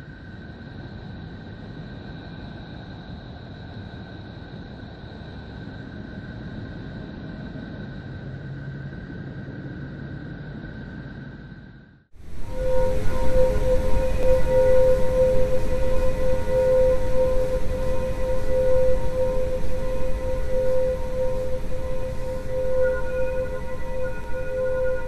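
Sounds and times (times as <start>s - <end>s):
high whistling tones: 12.3s - 25.0s.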